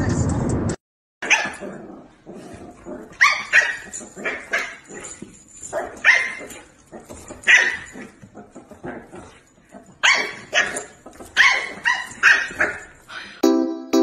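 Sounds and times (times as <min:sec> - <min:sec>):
dog barking: 0:01.2 - 0:01.9, 0:03.1 - 0:05.0, 0:05.7 - 0:08.2, 0:09.2 - 0:13.0
music jingle: 0:13.4 - 0:14.0.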